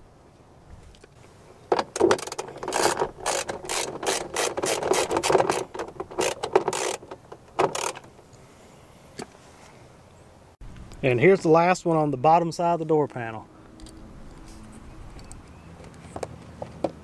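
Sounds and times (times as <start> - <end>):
ratchet clicking: 2.2 - 8.0.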